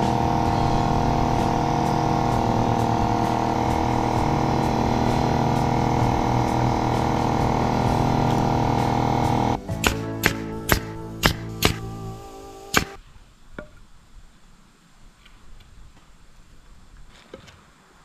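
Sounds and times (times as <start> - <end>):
air compressor motor running: 0.0 - 13.0.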